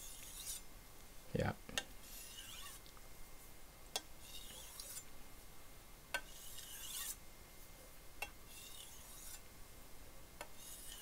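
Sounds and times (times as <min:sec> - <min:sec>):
knife scraping on whetstone: 0:00.0 - 0:00.7, 0:02.0 - 0:02.8, 0:04.2 - 0:05.1, 0:06.2 - 0:07.2, 0:08.5 - 0:09.4, 0:10.4 - 0:11.0.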